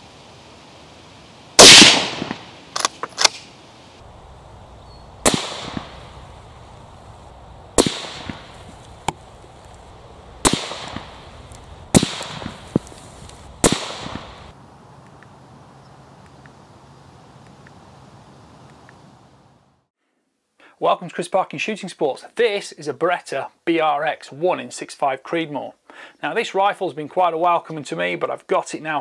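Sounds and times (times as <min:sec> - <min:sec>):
suppressed rifle shots: 0:01.6 - 0:03.5, 0:05.2 - 0:06.2, 0:07.8 - 0:08.6, 0:10.4 - 0:11.2, 0:11.9 - 0:12.9, 0:13.6 - 0:14.5.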